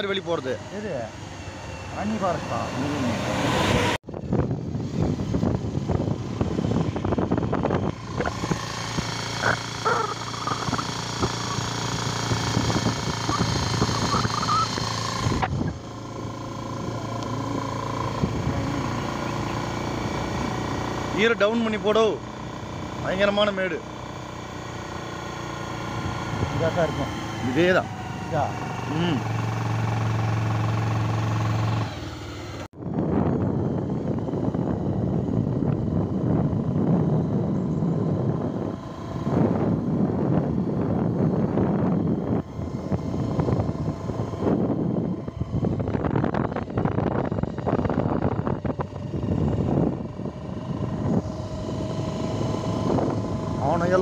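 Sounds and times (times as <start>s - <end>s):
motorcycle engine at speed: 0.0s - 54.0s
wind noise on microphone: 3.6s - 20.5s, 32.7s - 54.0s.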